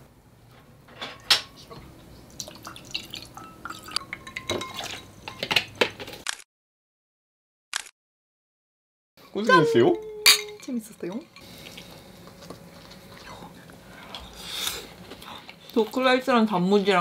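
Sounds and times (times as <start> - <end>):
dishes and glassware clinking: 0.9 - 1.8, 3.4 - 6.1, 9.5 - 11.5
juice pouring into glasses: 2.4 - 4.9
ice clinking against glass: 3.4 - 5.6.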